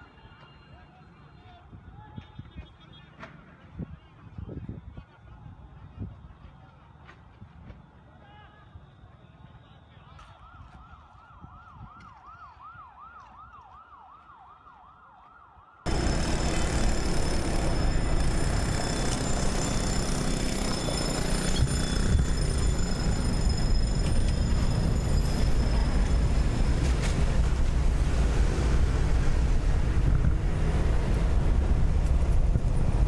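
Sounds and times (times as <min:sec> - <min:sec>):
wind and road noise: 0:00.0 - 0:08.2, 0:08.8 - 0:33.0
emergency siren yelping: 0:10.4 - 0:16.0.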